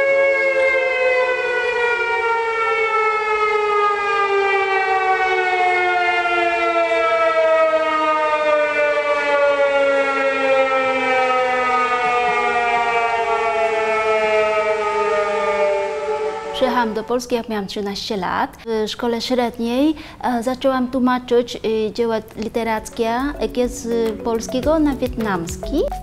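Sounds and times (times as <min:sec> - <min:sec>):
sirens wailing: 0:00.0 - 0:17.3.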